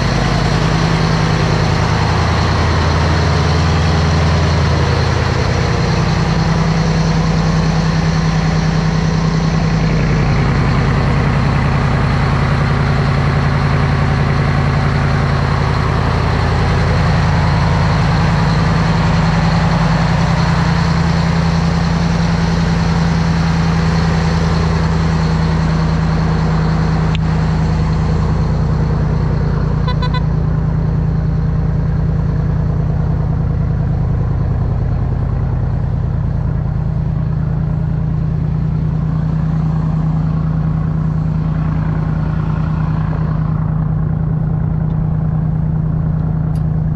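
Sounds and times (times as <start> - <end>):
boat engine droning: 0.0 - 46.9.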